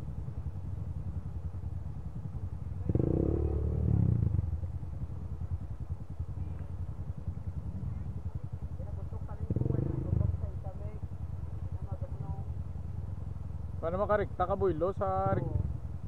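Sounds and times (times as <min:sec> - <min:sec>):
dirt bike engine revving: 0:02.8 - 0:04.6, 0:09.5 - 0:10.4.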